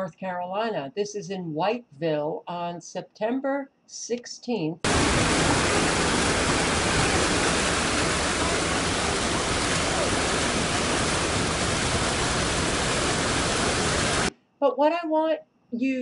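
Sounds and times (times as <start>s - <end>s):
floodwater rushing: 4.9s - 14.3s.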